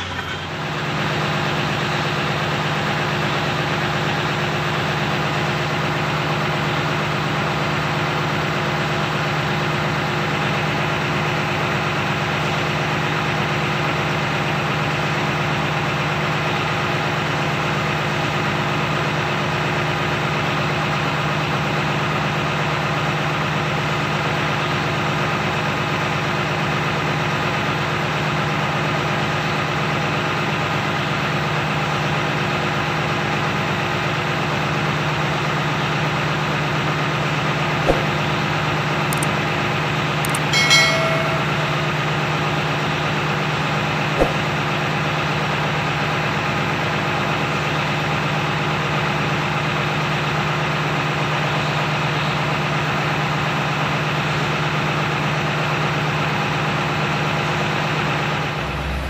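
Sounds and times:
short high-pitched beep: 0.0 - 0.7, 40.3 - 42.1
sharp clicks: 40.3 - 41.6.

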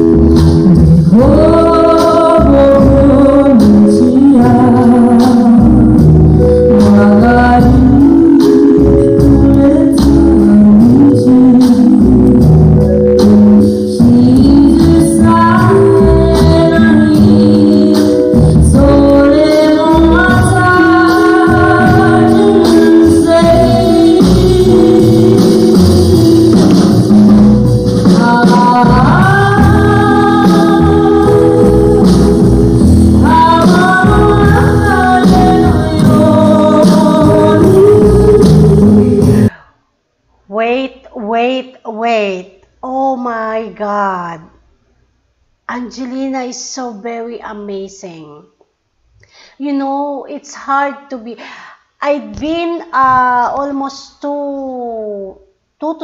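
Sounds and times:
girl singing ballad: 0.0 - 39.6
jazz band playing: 0.0 - 39.6.

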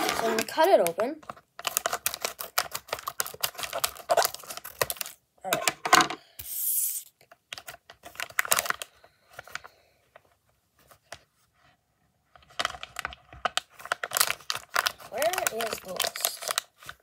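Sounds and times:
packaging torn and crinkled: 1.6 - 5.2, 7.5 - 9.0, 12.6 - 17.0.

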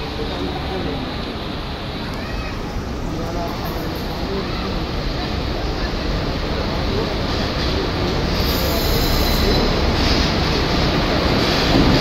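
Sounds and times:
train rumbling into station: 0.0 - 12.0
high-pitched wheel squeal: 8.4 - 10.2.

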